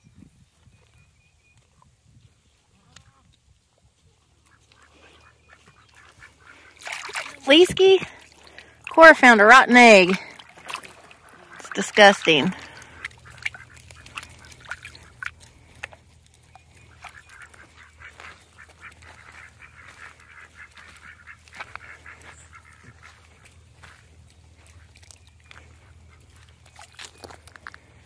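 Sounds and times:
ducks quacking faintly: 0:02.5 - 0:28.0.

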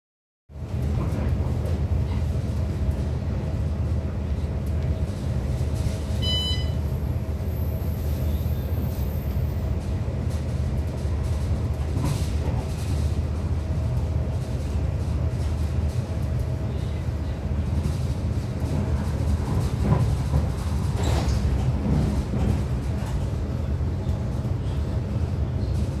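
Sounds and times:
train rumble inside carriage: 0:00.5 - 0:26.0
short electronic beep: 0:06.2 - 0:06.8.

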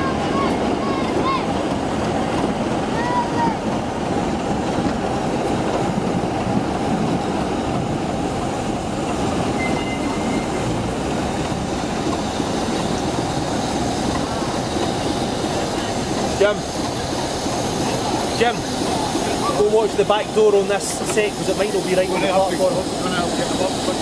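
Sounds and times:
train rumbling on rails: 0:00.0 - 0:24.0.

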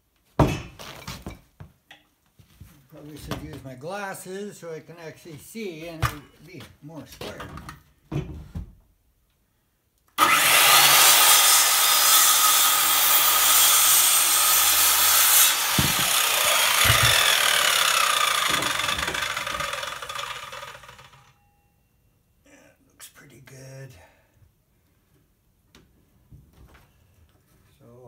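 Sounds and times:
circular saw cutting wood: 0:10.2 - 0:21.4
saw blade spinning down whine: 0:10.2 - 0:21.4
dull knocks: 0:15.7 - 0:17.4.

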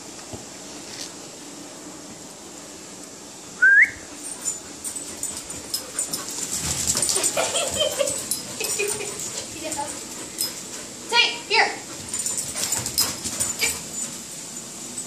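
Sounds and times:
puppies whining: 0:03.6 - 0:11.0, 0:12.1 - 0:15.0.

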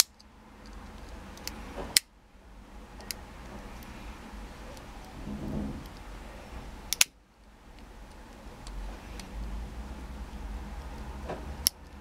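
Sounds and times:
pocket knife tools clicking: 0:00.0 - 0:02.1, 0:11.6 - 0:12.0.

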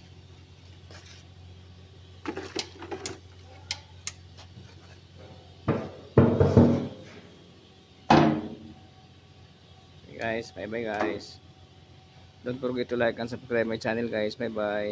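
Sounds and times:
low steady hum: 0:00.0 - 0:14.9
loud knocks: 0:05.7 - 0:07.1.

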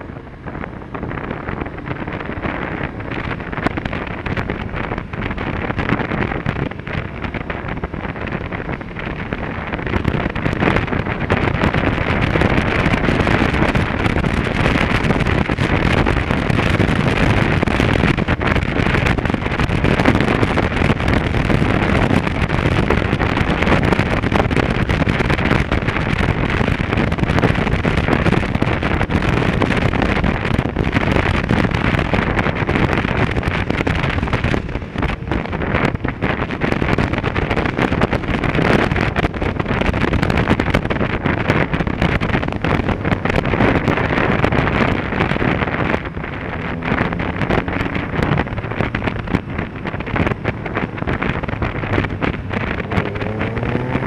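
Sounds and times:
motorcycle engine: 0:00.0 - 0:54.0
road noise: 0:00.0 - 0:54.0
wind rushing over microphone: 0:00.0 - 0:54.0.

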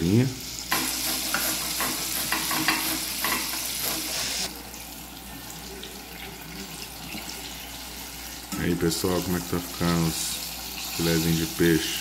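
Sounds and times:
fish deep-frying in oil: 0:00.0 - 0:12.0
carrot grating on grater: 0:00.8 - 0:03.1.

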